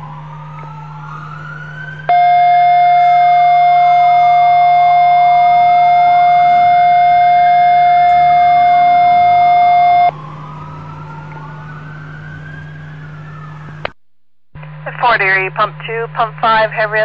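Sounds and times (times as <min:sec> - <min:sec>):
loud steady tone: 0:00.0 - 0:10.2, 0:14.6 - 0:17.0
sirens wailing: 0:00.0 - 0:14.0.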